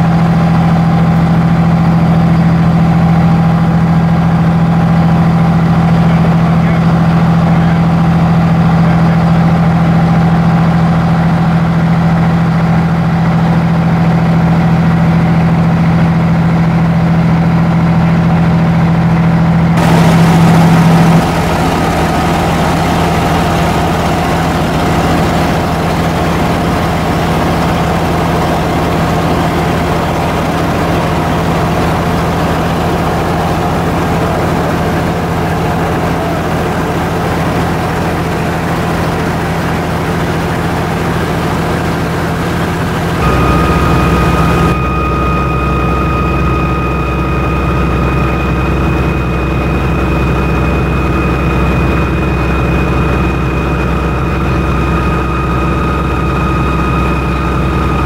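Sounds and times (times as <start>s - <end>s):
fire engine motor humming: 0.0s - 58.0s
low engine drone: 0.0s - 58.0s
water spraying hiss: 19.8s - 25.8s.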